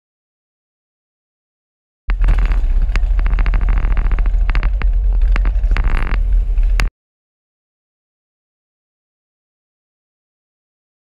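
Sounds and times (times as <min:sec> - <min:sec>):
motorcycle engine running: 0:02.1 - 0:06.9.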